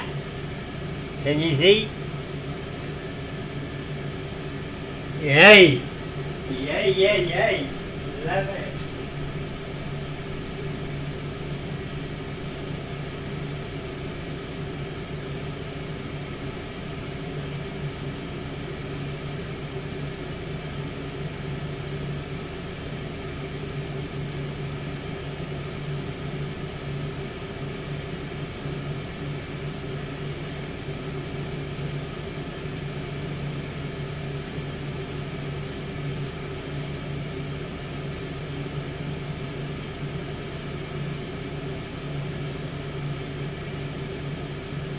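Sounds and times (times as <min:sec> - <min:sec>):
convection fan humming: 0:00.0 - 0:44.9.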